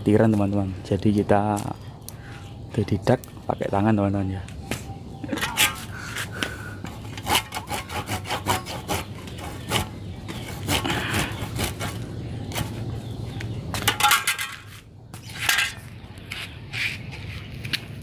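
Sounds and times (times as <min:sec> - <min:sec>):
scraping and rubbing on wood: 0:05.4 - 0:13.0.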